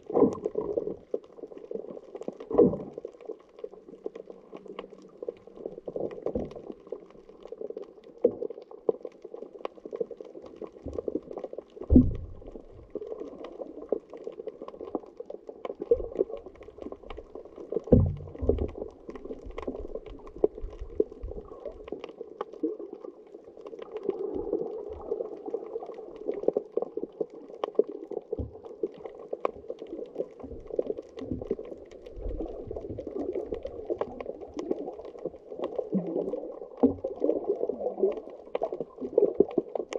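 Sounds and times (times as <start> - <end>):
faint underwater clicks: 0.0 - 39.9
underwater watery wash: 0.0 - 39.9
low underwater thumps: 11.9 - 13.0, 17.8 - 18.8.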